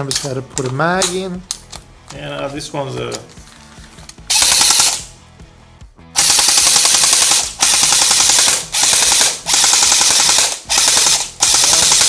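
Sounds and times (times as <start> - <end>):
gel blaster full-auto bursts: 4.3 - 5.1, 6.2 - 12.0.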